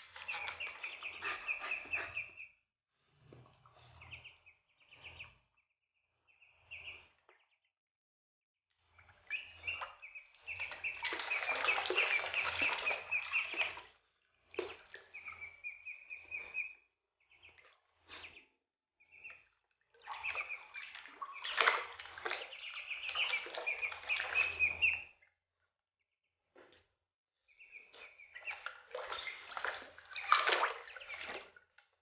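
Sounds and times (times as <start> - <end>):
ducklings peeping: 0.1 - 2.5, 3.8 - 5.5, 6.3 - 7.6, 9.2 - 13.8, 14.6 - 18.4, 19.1 - 25.3, 27.6 - 31.4
water splashing in plastic basin: 10.4 - 13.9, 20.0 - 24.8, 28.4 - 31.6.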